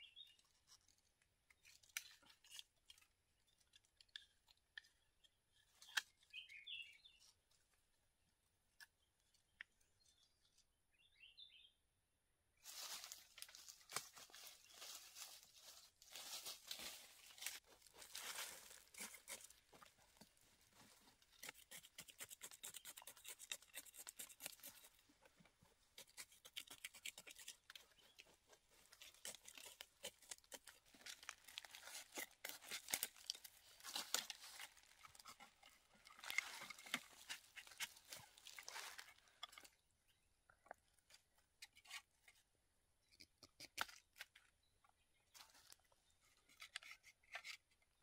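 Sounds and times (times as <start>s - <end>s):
crunching of dry leaf litter: 12.6s - 19.7s.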